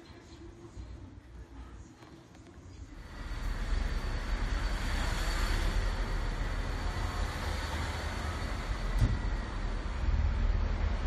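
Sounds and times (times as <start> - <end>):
distant traffic hiss: 3.0 - 11.0.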